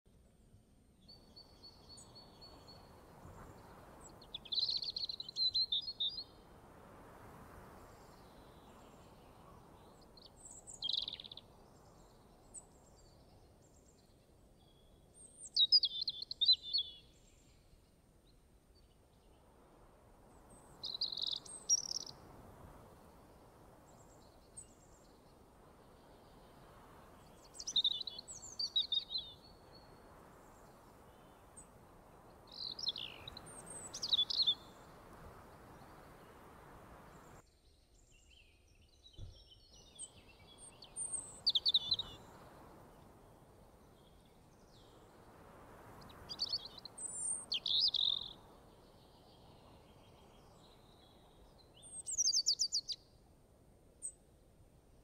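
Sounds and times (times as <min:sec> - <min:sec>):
birds chirping: 0:07.8 - 0:14.0, 0:20.3 - 0:37.4, 0:39.2 - 0:53.0.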